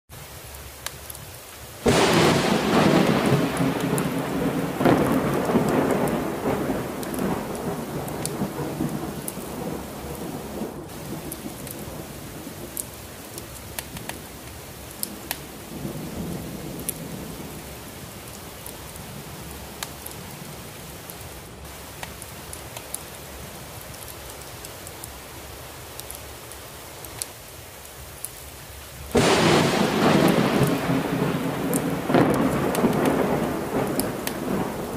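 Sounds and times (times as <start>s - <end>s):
heavy rain: 0.1s - 34.9s
thunder clap and rumble: 1.8s - 12.9s, 15.0s - 17.8s, 29.2s - 34.9s.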